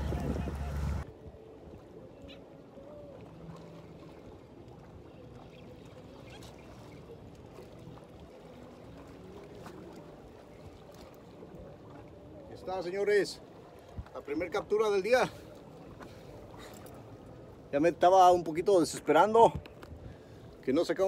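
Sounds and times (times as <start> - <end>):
wind noise: 0.0 - 1.4
motorboat engine drone: 0.0 - 12.1
water noise: 0.0 - 21.0.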